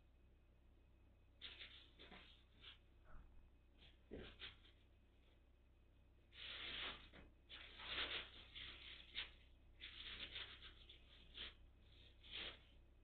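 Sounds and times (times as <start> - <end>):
cat scratching and rustling: 1.4 - 3.0, 3.8 - 4.9, 6.3 - 13.0.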